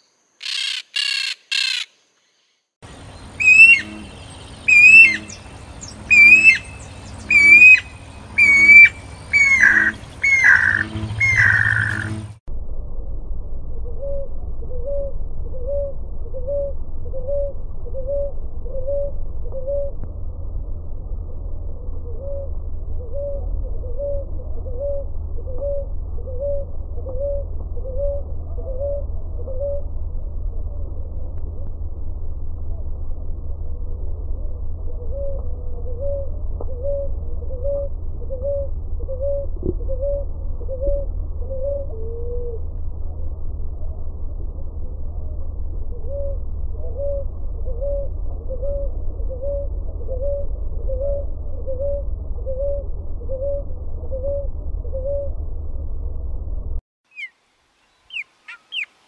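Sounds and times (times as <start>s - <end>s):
low rumble: 2.8s - 56.8s
low background hum: 2.8s - 59.0s
dove cooing: 3.3s - 12.3s, 14.0s - 19.9s, 22.0s - 29.9s, 34.9s - 42.6s, 45.9s - 55.4s.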